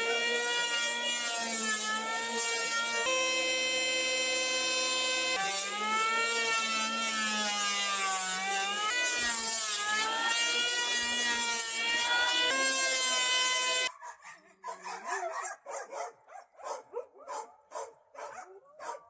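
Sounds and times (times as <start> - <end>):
electric hand planer whining: 0.0 - 13.9.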